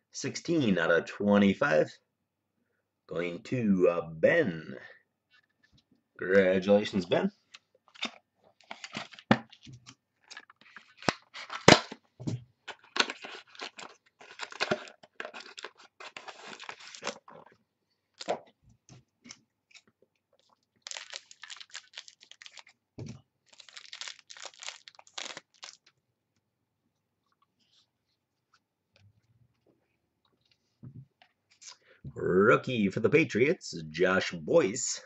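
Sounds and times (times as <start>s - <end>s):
cards and plastic sleeves shuffling: 7.4s - 12.0s, 12.6s - 17.6s, 19.2s - 22.8s, 23.4s - 25.9s
card pack wrapper tearing and crinkling: 7.9s - 9.6s, 10.2s - 12.0s, 12.7s - 17.4s, 20.4s - 22.8s, 23.4s - 25.9s.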